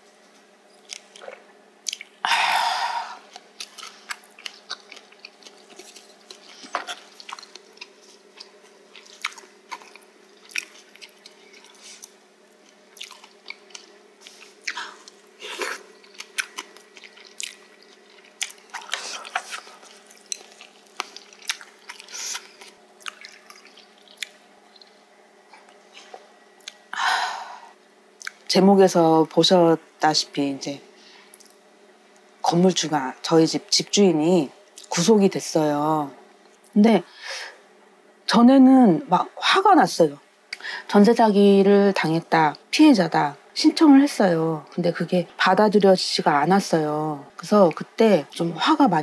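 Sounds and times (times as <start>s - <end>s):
chewing and crunching: 0.7s - 2.2s, 3.2s - 26.9s.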